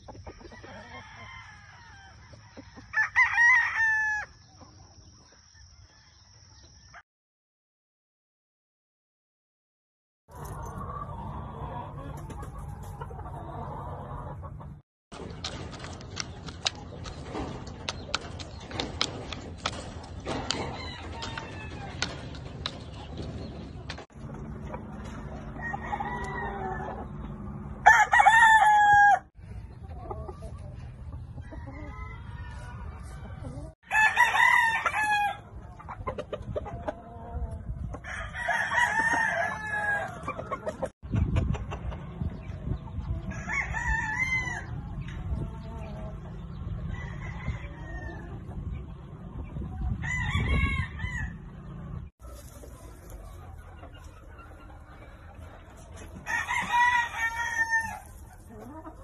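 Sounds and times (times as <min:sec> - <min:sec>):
roosters crowing: 0:00.3 - 0:04.4, 0:18.5 - 0:29.4, 0:31.4 - 0:35.6, 0:38.0 - 0:40.9, 0:43.2 - 0:45.0, 0:46.8 - 0:48.5, 0:49.9 - 0:52.0, 0:56.0 - 0:59.0
chicken calls: 0:10.3 - 0:59.0.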